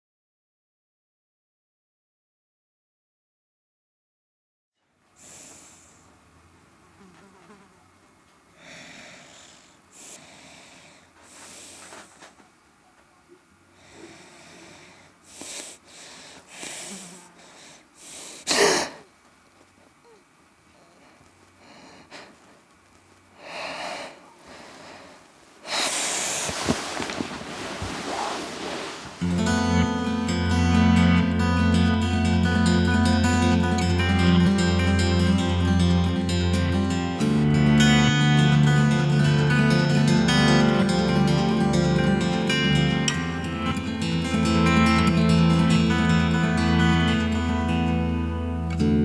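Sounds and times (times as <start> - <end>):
sleeping person breathing: 5.2 - 6.1, 8.5 - 12.4, 13.7 - 19.1, 20.0 - 22.6, 23.3 - 29.9.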